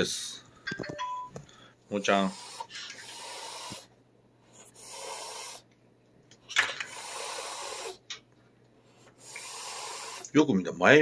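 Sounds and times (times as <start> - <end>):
cat hissing: 2.1 - 3.9, 4.5 - 5.7, 6.8 - 8.0, 9.1 - 10.3.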